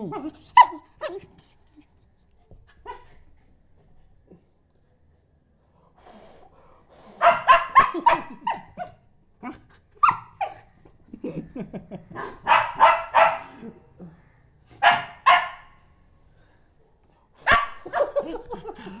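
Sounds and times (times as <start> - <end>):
small dog barking: 7.2 - 8.9, 12.2 - 13.6, 14.8 - 15.8, 17.4 - 18.3.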